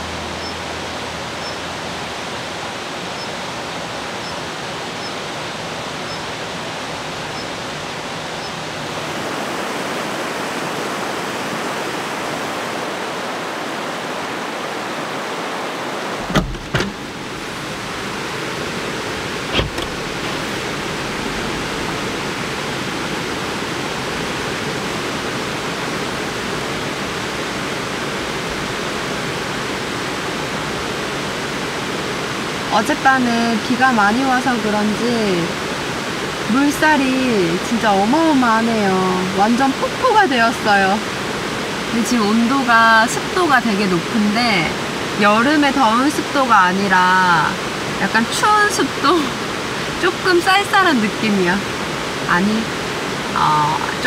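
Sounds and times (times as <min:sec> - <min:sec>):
stream rushing: 0:00.0 - 0:54.0
car door knocks: 0:16.2 - 0:17.2, 0:19.5 - 0:20.5.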